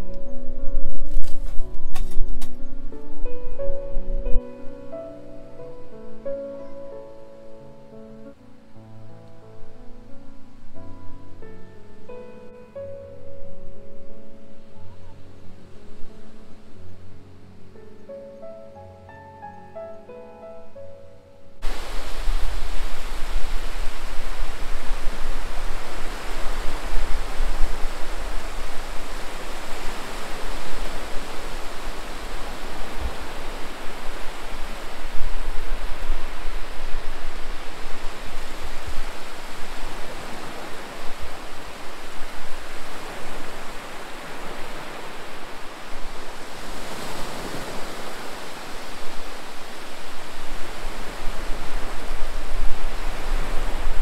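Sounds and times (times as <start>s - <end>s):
small waves breaking on shore: 21.6s - 54.0s.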